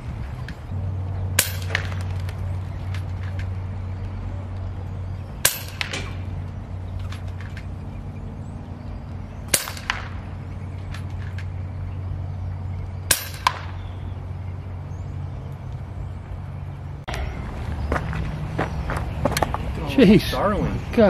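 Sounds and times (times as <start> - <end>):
low hum: 0.0 - 19.8
air rifle shot crack: 9.5 - 10.3.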